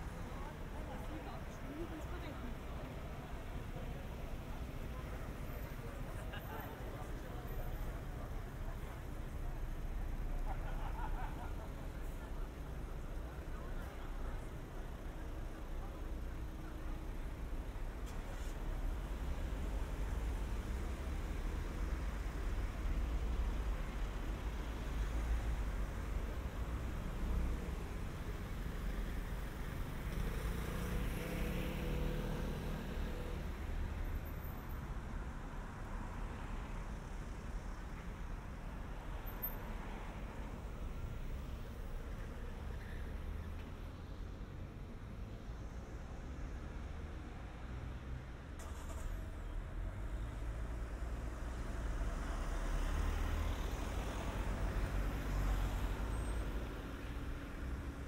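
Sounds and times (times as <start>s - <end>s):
low traffic rumble: 0.0s - 58.0s
cars passing: 15.8s - 36.8s, 48.6s - 58.0s.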